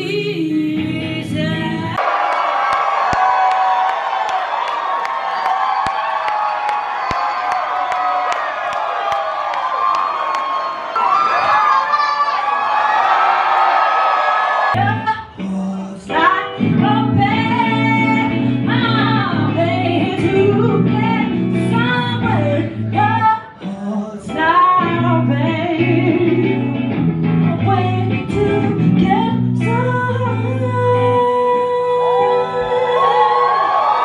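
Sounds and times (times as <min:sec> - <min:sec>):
woman singing into a microphone: 0:00.0 - 0:02.0, 0:14.8 - 0:26.9, 0:27.5 - 0:33.6
electric guitar: 0:14.8 - 0:34.0.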